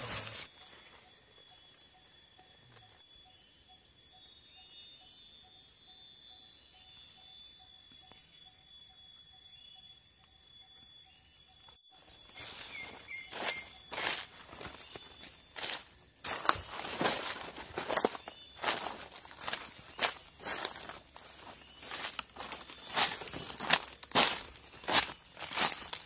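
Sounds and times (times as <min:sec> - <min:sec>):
high-pitched insect drone: 0:00.0 - 0:26.0
footsteps in dry leaves: 0:12.2 - 0:26.0.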